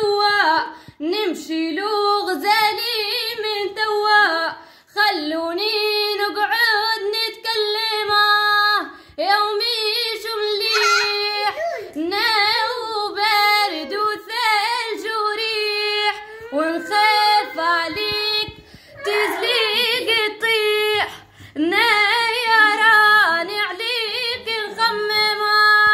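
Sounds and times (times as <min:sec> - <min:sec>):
girl singing solo: 0:10.2 - 0:23.0.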